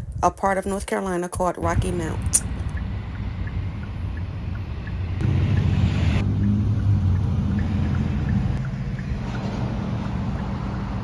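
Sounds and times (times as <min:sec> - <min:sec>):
car engine and tyre rumble: 0:02.0 - 0:11.0.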